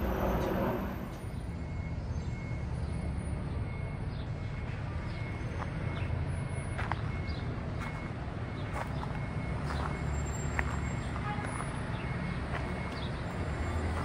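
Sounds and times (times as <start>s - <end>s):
street traffic rumble: 0.0s - 14.0s.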